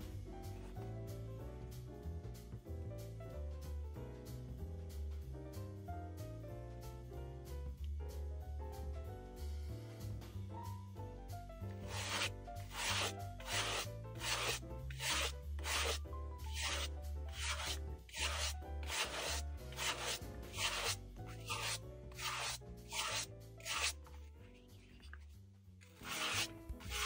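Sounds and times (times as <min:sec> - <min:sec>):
soft background music: 0:00.0 - 0:27.0
brush swishing on suede: 0:11.8 - 0:24.0, 0:26.0 - 0:27.0.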